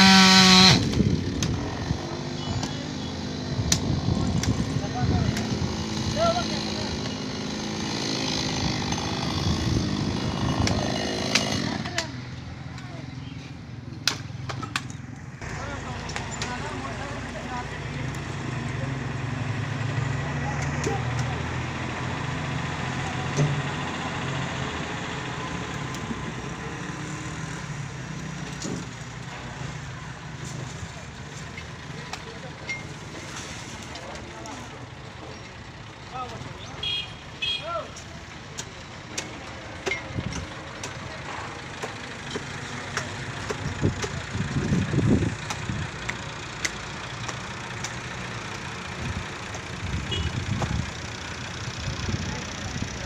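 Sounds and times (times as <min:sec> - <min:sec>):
tractor diesel engine running: 0:29.1 - 0:53.0.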